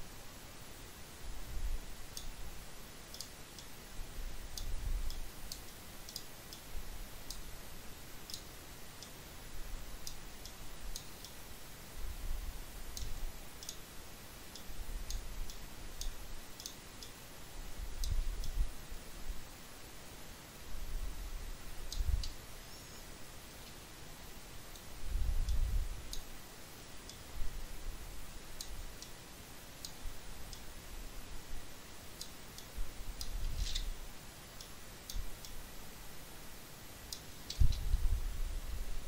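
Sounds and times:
computer mouse clicking: 4.5s - 7.4s, 13.0s - 13.8s, 14.5s - 17.2s.

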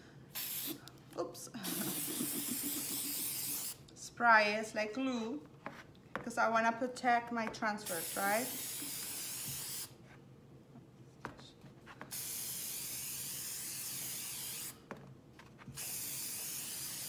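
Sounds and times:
aerosol spray hissing: 0.3s - 0.8s, 1.6s - 3.8s, 7.9s - 10.0s, 12.1s - 14.8s, 15.8s - 17.0s.

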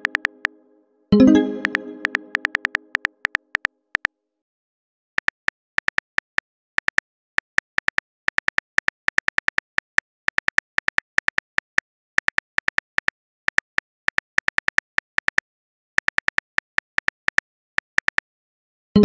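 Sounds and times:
phone keyboard typing clicks: 0.0s - 0.6s, 1.4s - 4.1s.

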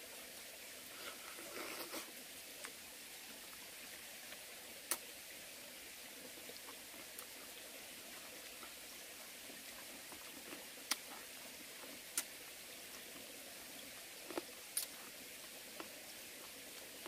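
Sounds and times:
stream hissing: 0.0s - 17.0s
person chewing crisp melon: 9.7s - 17.0s.

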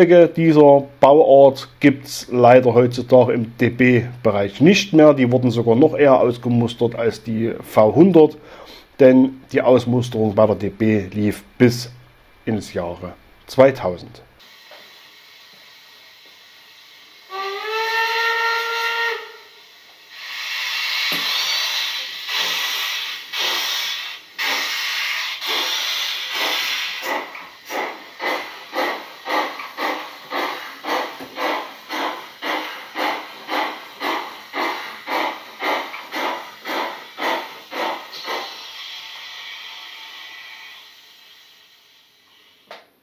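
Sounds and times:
steam hissing: 0.0s - 12.0s, 12.6s - 42.7s
steam locomotive exhaust chuffs: 0.0s - 42.7s
toy train whistle: 17.2s - 27.1s, 38.4s - 42.6s.

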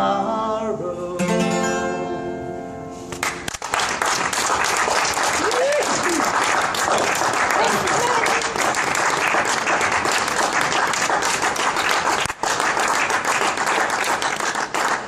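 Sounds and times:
crowd applauding: 3.2s - 15.0s.

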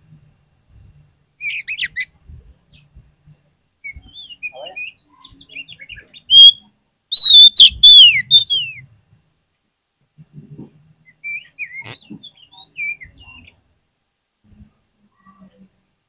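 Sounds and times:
bird singing whistled notes: 3.8s - 8.8s, 11.1s - 13.5s
short chirpy bird phrases: 4.0s - 8.8s.

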